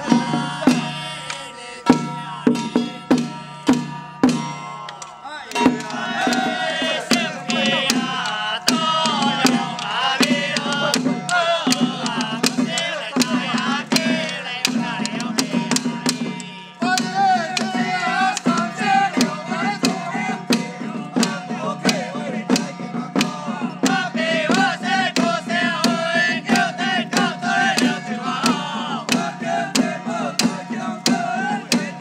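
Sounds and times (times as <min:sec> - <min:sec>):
wavering melody: 0:00.0 - 0:14.5
sharp percussion beat: 0:00.0 - 0:32.0.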